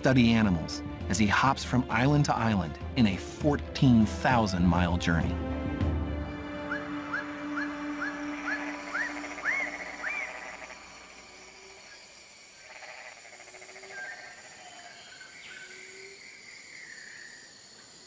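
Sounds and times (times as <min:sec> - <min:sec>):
bird whistled calls: 0:06.7 - 0:10.6
faint scattered whistles and calls: 0:06.7 - 0:12.2, 0:13.8 - 0:17.9.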